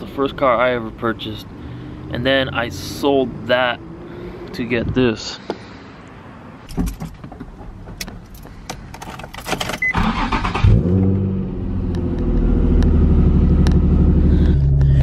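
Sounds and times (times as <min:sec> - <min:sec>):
clicks and handling noises: 0:06.7 - 0:09.8
car engine starting and idling: 0:06.8 - 0:15.0.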